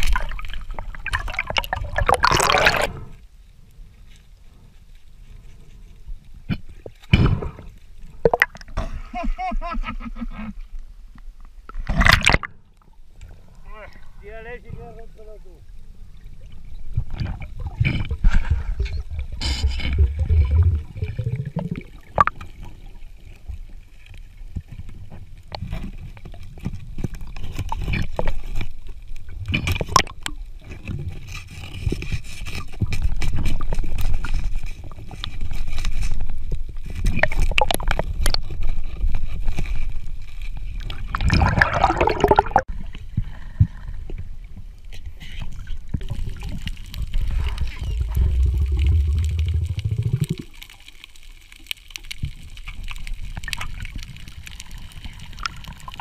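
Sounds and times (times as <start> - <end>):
underwater rumble of moving water: 10.8 - 56.0
loud rush of noise: 48.0 - 50.3.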